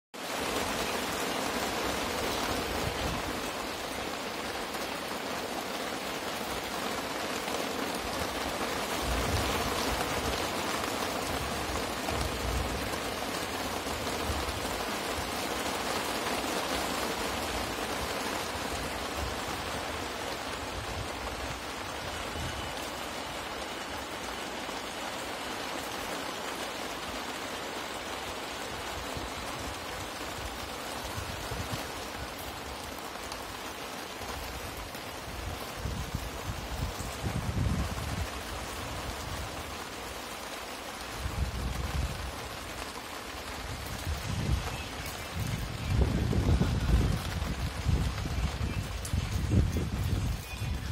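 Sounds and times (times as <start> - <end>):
steady rain hiss: 0.2 - 50.9
wind rumble on microphone: 8.3 - 15.4, 28.7 - 32.7, 34.4 - 39.8, 41.2 - 42.7, 43.6 - 50.9.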